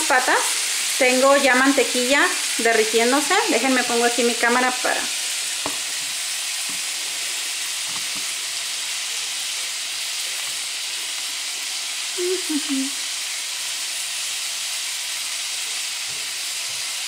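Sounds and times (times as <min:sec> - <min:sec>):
butter sizzling in a pan: 0:00.0 - 0:17.0.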